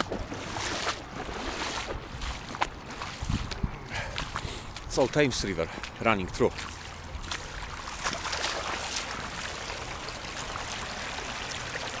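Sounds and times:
boots wading through water: 0:00.0 - 0:12.0
floodwater rushing: 0:00.0 - 0:12.0.

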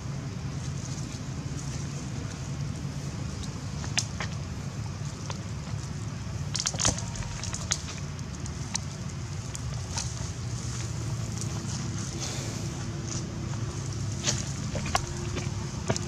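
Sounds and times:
steady low rumble: 0:00.0 - 0:16.0
dry leaves crackling: 0:05.8 - 0:16.0.

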